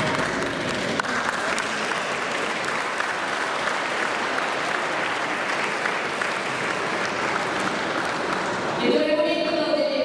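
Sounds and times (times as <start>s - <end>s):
crowd applauding: 0.0s - 8.8s.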